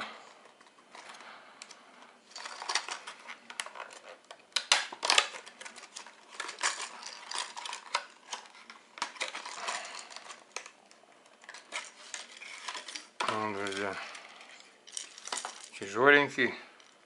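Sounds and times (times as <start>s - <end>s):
plastic box clicking and crackling: 2.4s - 14.2s.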